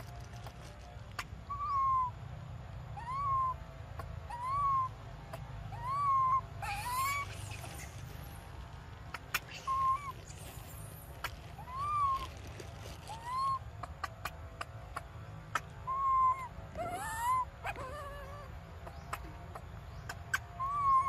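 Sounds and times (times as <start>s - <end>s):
young monkey whimpering: 3.0s - 4.9s, 5.7s - 8.0s, 9.2s - 10.2s, 11.6s - 12.3s, 13.0s - 14.1s, 15.5s - 21.0s.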